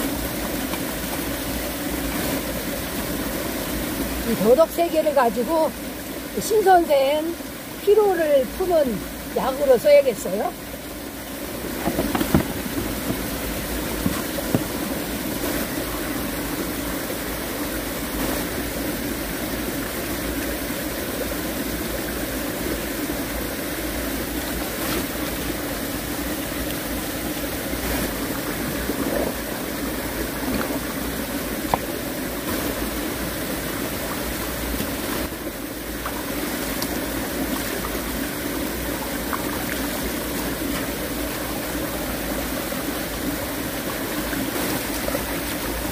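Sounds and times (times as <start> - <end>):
stream running over rocks: 0.0 - 45.9.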